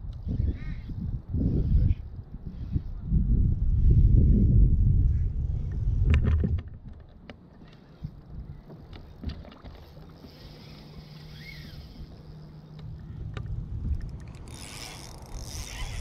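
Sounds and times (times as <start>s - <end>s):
fishing line hiss: 9.8s - 12.8s, 14.2s - 16.0s
fishing reel clicks and ticks: 10.3s - 16.0s.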